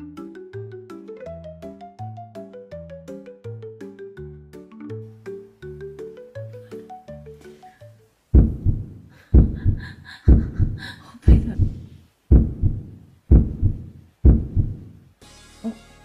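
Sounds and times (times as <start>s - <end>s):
heartbeat lub-dub beats: 8.4s - 15.0s.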